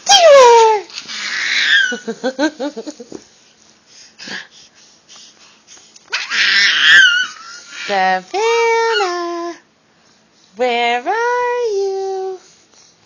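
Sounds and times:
baby squealing: 0:01.1 - 0:02.0, 0:06.1 - 0:07.9.

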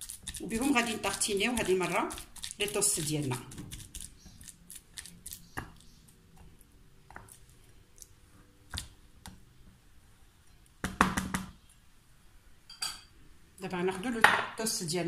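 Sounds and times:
soft squishing: 0:00.0 - 0:10.8.

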